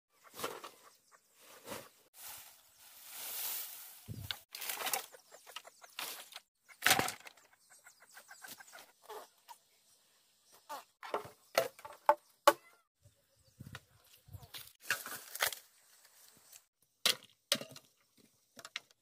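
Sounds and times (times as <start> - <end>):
chickens clucking: 0.1 - 1.9, 4.6 - 9.6.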